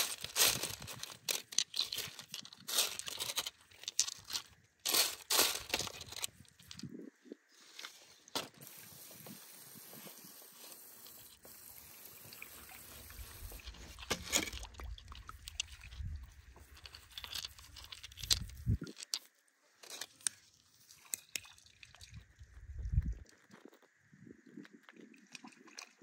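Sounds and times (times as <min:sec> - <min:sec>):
crystals and gravel clicking: 0:00.0 - 0:07.0, 0:13.1 - 0:21.6.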